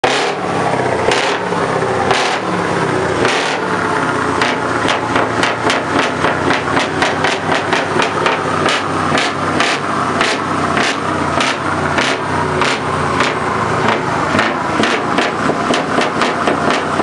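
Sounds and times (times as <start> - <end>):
truck engine idling: 0.0 - 17.0
sharp knocks: 4.4 - 17.0.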